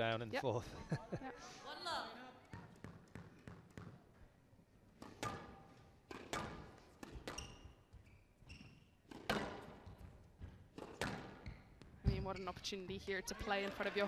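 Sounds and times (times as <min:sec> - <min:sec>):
squash ball knocks: 0:05.0 - 0:07.5, 0:09.1 - 0:12.2
shoes squeaking on court: 0:06.1 - 0:13.3.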